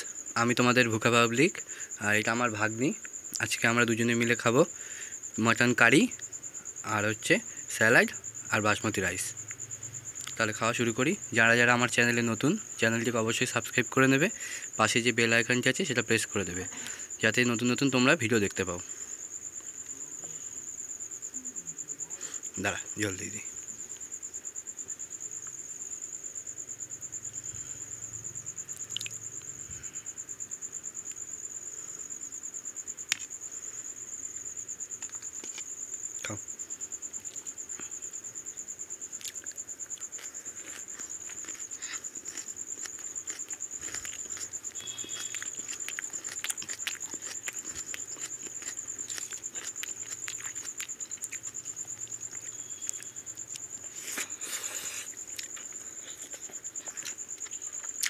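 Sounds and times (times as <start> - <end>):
chewing and lip smacks: 28.8 - 29.5, 39.2 - 58.0
fingers mixing rice on a plate: 40.1 - 58.0.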